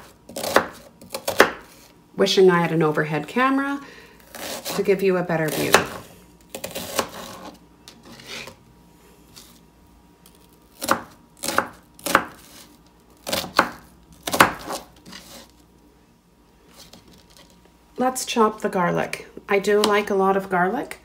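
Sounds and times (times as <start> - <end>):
knife chopping on cutting board: 0.0 - 1.8, 10.8 - 12.6, 13.2 - 15.4.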